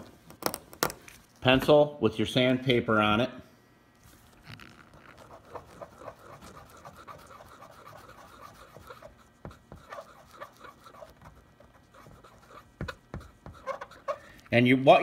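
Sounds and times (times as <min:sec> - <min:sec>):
sandpaper scratching metal: 0:05.1 - 0:11.2, 0:13.4 - 0:14.2.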